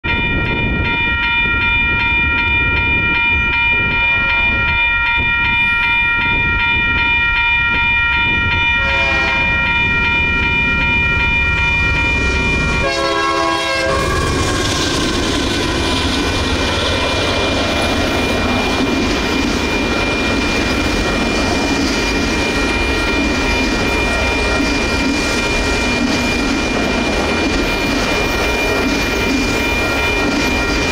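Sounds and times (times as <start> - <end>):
crossing warning bell ringing: 0.0 - 30.9
train rumbling and wheel noise: 0.0 - 30.9
train horn blasts: 8.7 - 9.8, 12.8 - 14.8.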